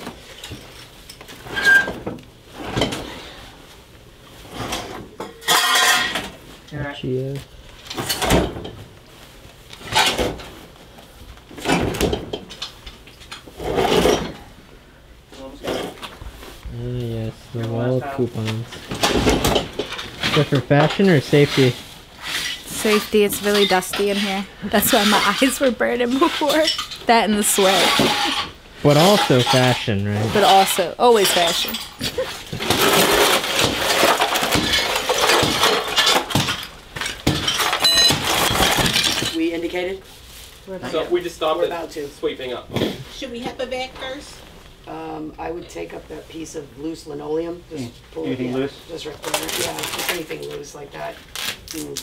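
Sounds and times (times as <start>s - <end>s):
hand tool scraping tile: 20.3s - 26.8s, 27.5s - 31.8s
plastic dustpan scraping: 27.6s - 30.8s.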